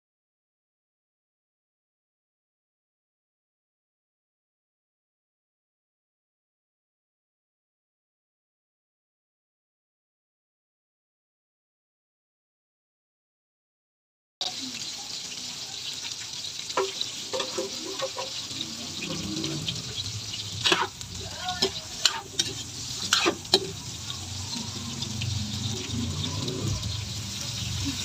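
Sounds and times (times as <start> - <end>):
food sizzling in oil: 14.4 - 28.0
metal ladle scraping and knocking pan: 16.7 - 27.8.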